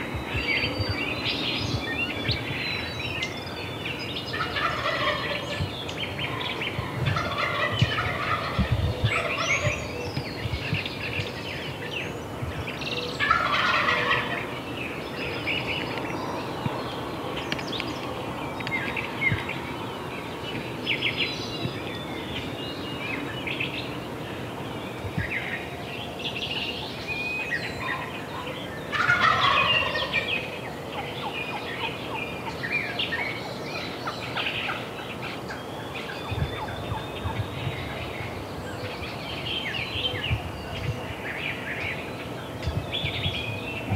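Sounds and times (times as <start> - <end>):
songbirds chirping: 0.0 - 43.9
turkey gobbling: 4.3 - 5.6, 6.2 - 9.8, 13.2 - 14.5, 27.8 - 30.3.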